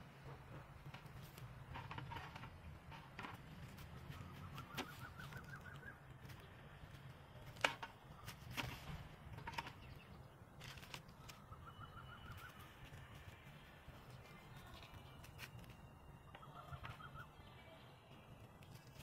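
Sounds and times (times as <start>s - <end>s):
faint bird trill: 4.0s - 6.2s, 11.1s - 18.9s.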